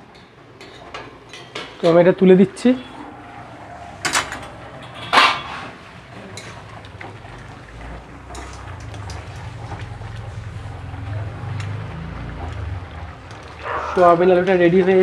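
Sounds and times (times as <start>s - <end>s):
low steady hum: 0.0s - 13.6s
metal spatula scraping in pot: 2.6s - 6.7s
pot lid clanking: 4.0s - 5.8s.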